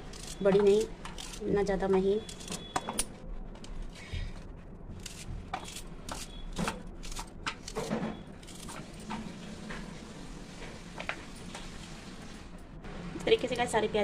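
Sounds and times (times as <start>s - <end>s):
knife slicing onion: 0.0s - 2.6s, 4.9s - 8.8s.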